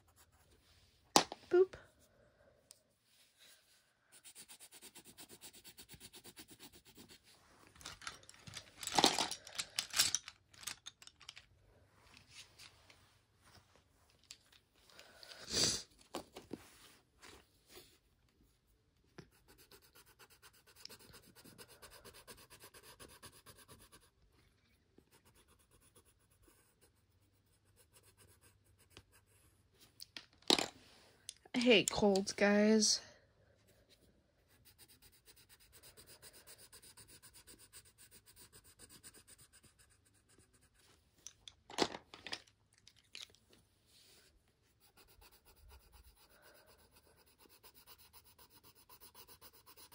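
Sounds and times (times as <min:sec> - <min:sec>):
colored pencil scratching on paper: 0:00.0 - 0:00.6, 0:03.3 - 0:07.4, 0:19.2 - 0:24.4, 0:25.0 - 0:29.8, 0:33.6 - 0:41.0, 0:44.0 - 0:49.9.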